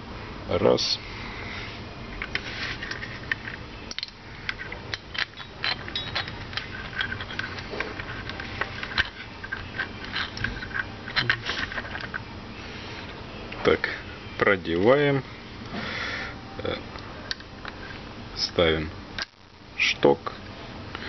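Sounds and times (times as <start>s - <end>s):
plastic and metal parts clicking: 2.2s - 12.2s.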